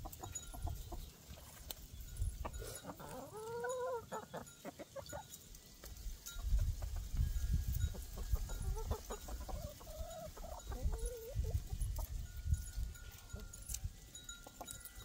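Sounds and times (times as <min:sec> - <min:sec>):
hens clucking: 0:00.0 - 0:01.6, 0:02.4 - 0:07.2, 0:07.8 - 0:12.2.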